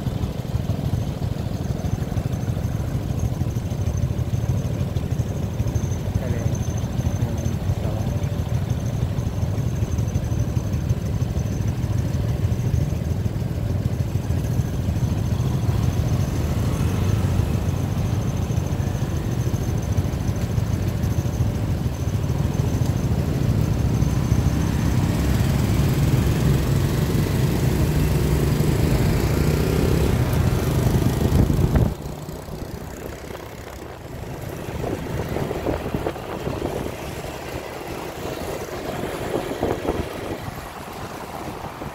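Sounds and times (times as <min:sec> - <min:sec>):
small motorbike engine running: 0:00.0 - 0:41.9
wind rumble on microphone: 0:30.8 - 0:33.5, 0:34.5 - 0:37.0.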